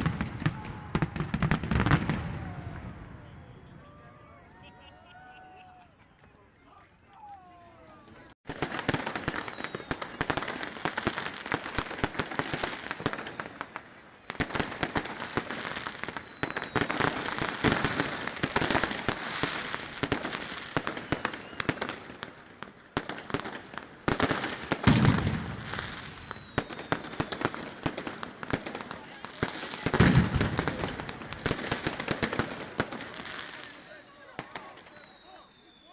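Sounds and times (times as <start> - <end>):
fireworks cracking and banging: 0.0 - 3.4, 8.4 - 35.8
falling firework whistles: 8.5 - 10.8, 11.5 - 13.5, 15.4 - 22.1, 24.8 - 27.7, 29.5 - 35.9.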